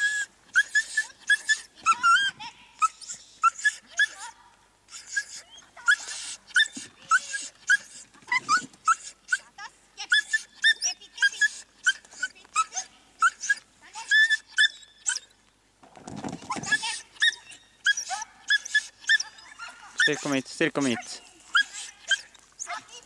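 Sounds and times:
dog yapping: 0.0 - 9.5, 10.1 - 15.3, 16.3 - 23.0.

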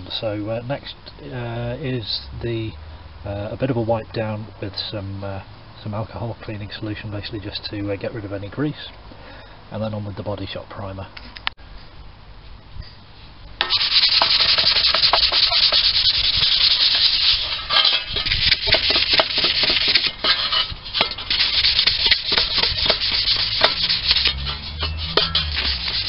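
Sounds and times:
abrasive pad scrubbing metal: 13.6 - 26.0.

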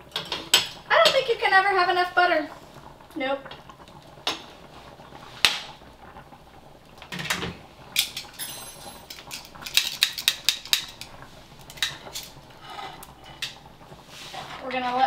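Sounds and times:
cookware and utensils clattering: 0.1 - 1.4, 7.1 - 13.6.

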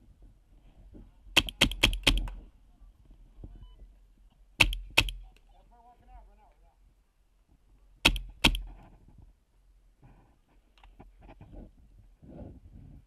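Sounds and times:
paintball marker shots: 1.4 - 2.4, 4.6 - 5.2, 8.0 - 8.8.

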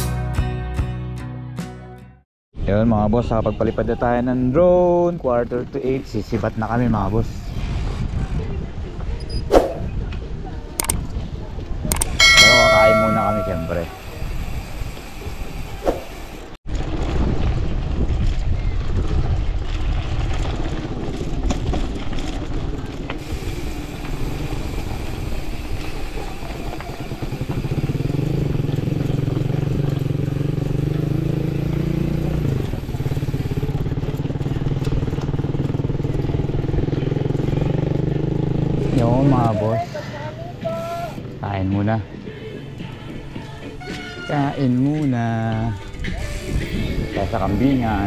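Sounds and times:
bicycle tyres rolling on gravel: 13.7 - 38.1, 43.0 - 48.0.

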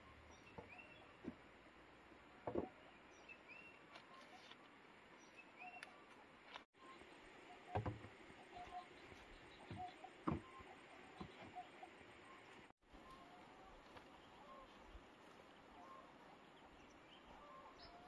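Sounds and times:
faint bird chirps: 2.7 - 6.2, 6.8 - 18.0
bamboo poles knocking: 7.7 - 8.1.

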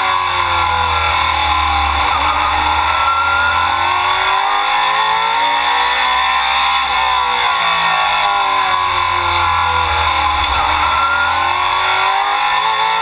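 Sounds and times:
race car engine at speed: 0.0 - 13.0.

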